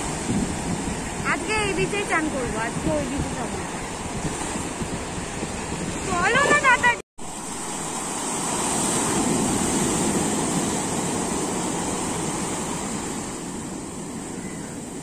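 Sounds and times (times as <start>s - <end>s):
sea waves breaking: 0.0s - 15.0s.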